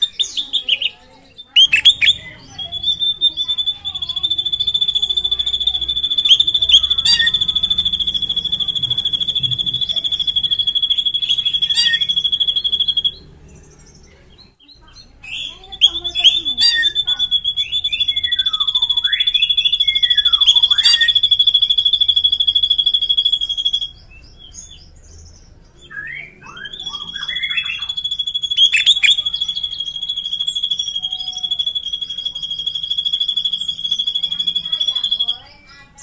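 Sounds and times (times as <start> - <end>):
bird down-slurred whistles: 0.0 - 13.3, 15.3 - 24.9, 25.8 - 36.0
bird high rolling trill: 0.0 - 36.0
bird short rising chirps: 1.4 - 14.2, 25.8 - 35.4.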